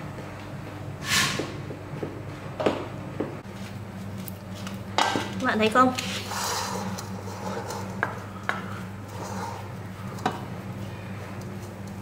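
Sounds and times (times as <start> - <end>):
wooden spoon scraping in pot: 6.0 - 12.0.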